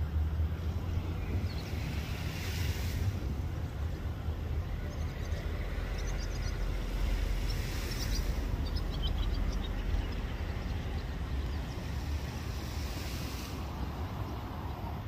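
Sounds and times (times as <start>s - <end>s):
outdoor background noise: 0.0s - 15.0s
wind rumbling on microphone: 0.0s - 15.0s
faint bird chirps: 4.8s - 12.4s.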